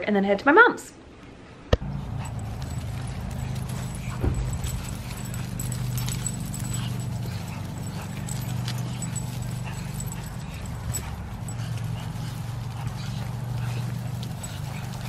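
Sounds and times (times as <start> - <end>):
dogs moving in grass: 1.8 - 15.0
steady low hum: 1.8 - 15.0
small clicks and rustles: 2.1 - 15.0.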